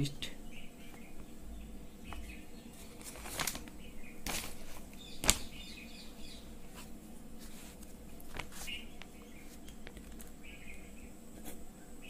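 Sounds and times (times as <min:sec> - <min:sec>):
paper rustling swishes: 0:02.7 - 0:05.6, 0:06.6 - 0:09.7
faint bird chirps: 0:08.6 - 0:12.0.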